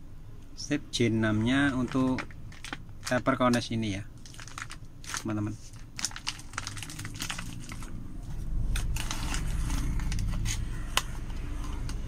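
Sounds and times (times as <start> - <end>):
plastic bag crinkling: 1.3 - 3.6, 4.2 - 8.0, 8.8 - 10.3.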